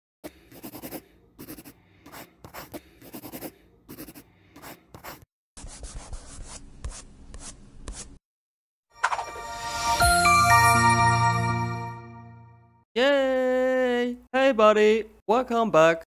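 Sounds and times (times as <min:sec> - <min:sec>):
pencil scribbling on paper: 0:00.2 - 0:08.2.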